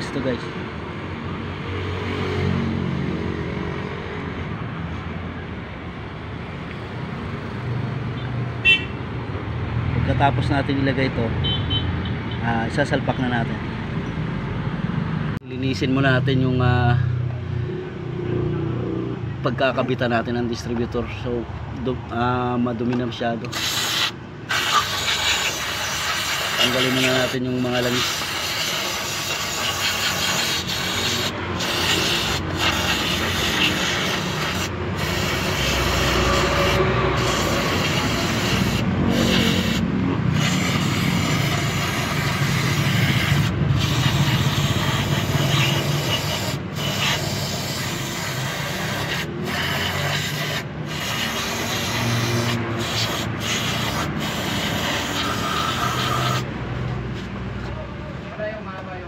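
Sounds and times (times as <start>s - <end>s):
aerosol spray can hissing: 23.5s - 56.5s.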